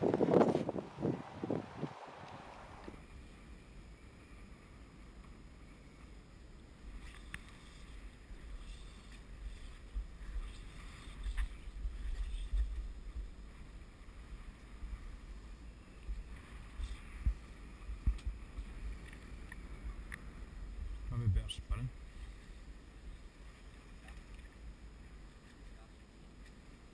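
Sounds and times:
wind on microphone: 0:00.0 - 0:03.0, 0:07.8 - 0:23.2.

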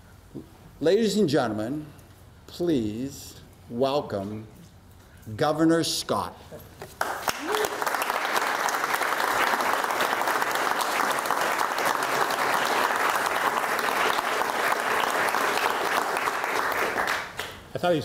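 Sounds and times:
group of people applauding: 0:06.9 - 0:17.6.

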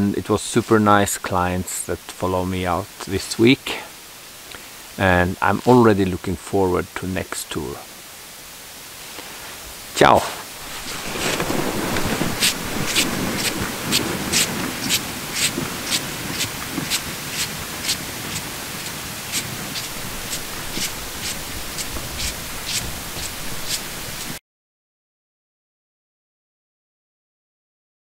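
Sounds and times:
steady hiss: 0:00.0 - 0:24.4
footsteps crunching on snow: 0:10.2 - 0:24.4.

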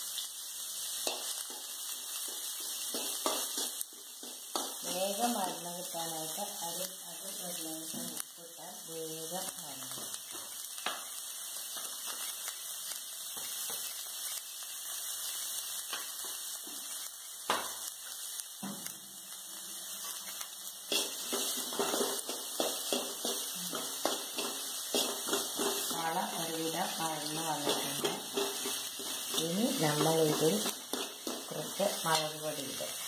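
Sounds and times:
onions sizzling in hot oil: 0:00.0 - 0:33.0
steel spoon scraping pan: 0:20.9 - 0:32.2.

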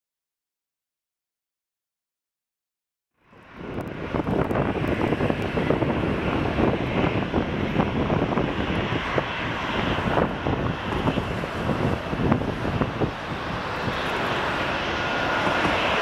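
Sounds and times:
distant jet engine noise: 0:03.2 - 0:16.0
wind buffeting microphone: 0:03.3 - 0:16.0.

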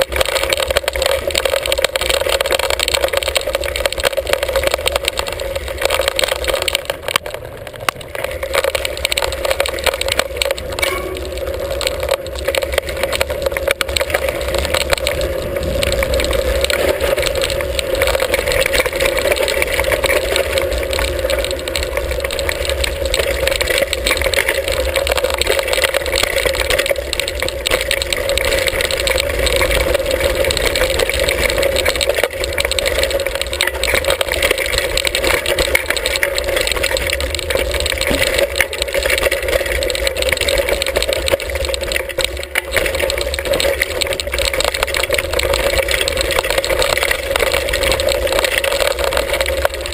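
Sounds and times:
bike rattling over stones: 0:00.0 - 0:49.9.

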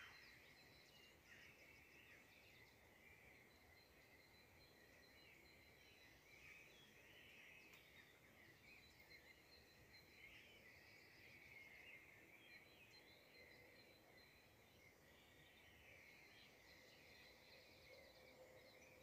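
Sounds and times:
faint high-pitched chirping: 0:00.0 - 0:19.0.

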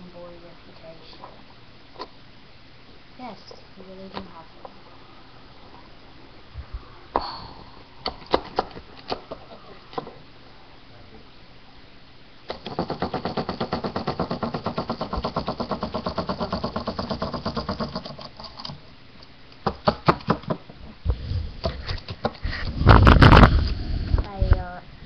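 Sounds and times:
sharp knocks: 0:12.5 - 0:18.1.

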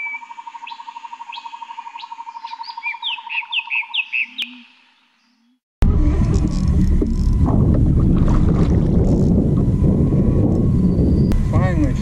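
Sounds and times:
bird-like chirps and whistles: 0:00.0 - 0:05.6
wind noise rush: 0:05.8 - 0:12.0.

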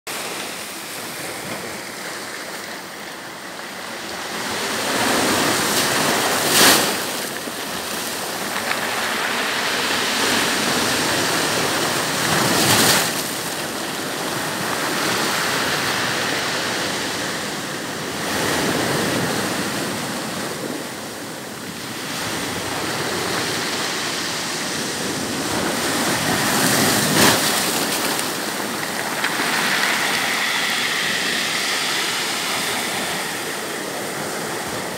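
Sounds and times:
surf breaking on pebble shore: 0:00.1 - 0:34.9.

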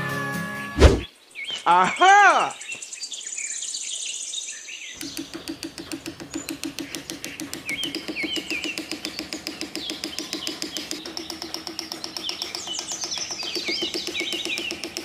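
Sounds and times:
birds chirping: 0:00.6 - 0:15.0
rapid pulsing trill: 0:05.0 - 0:15.0.

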